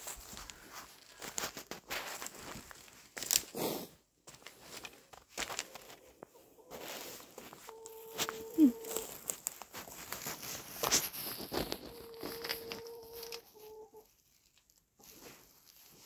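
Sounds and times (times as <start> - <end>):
footsteps crunching on frosty ground: 0.0 - 16.0
hens calling: 5.8 - 9.4, 11.6 - 14.2.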